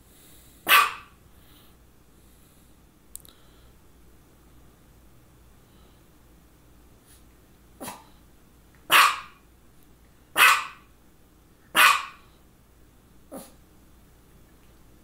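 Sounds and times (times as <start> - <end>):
small dog barking: 0.6 - 1.2, 7.8 - 8.1, 8.9 - 9.4, 10.3 - 10.9, 11.7 - 12.3, 13.3 - 13.6.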